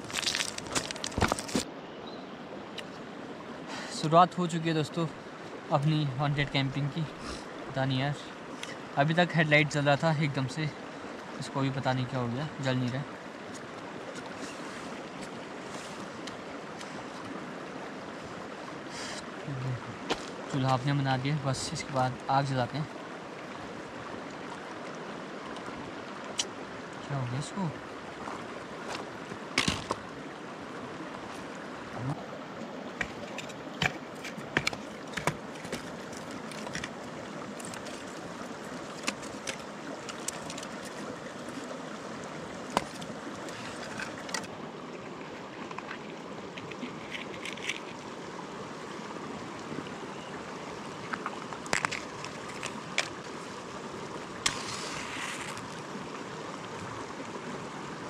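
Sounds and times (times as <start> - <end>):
river flowing: 0.0 - 58.0
handling clicks and knocks: 33.0 - 37.0.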